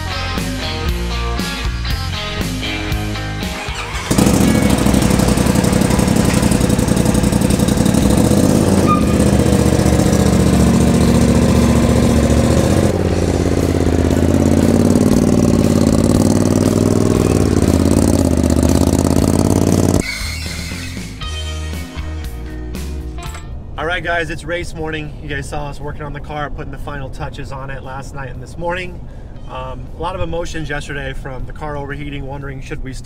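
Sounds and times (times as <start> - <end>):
utility vehicle engine running: 3.5 - 20.0.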